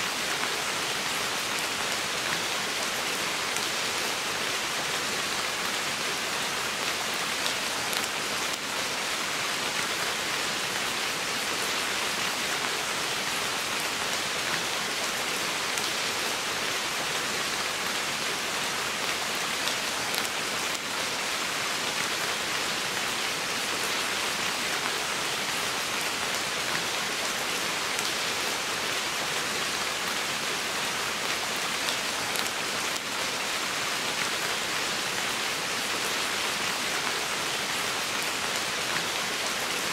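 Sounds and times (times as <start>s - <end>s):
rain on foliage: 0.0s - 39.9s.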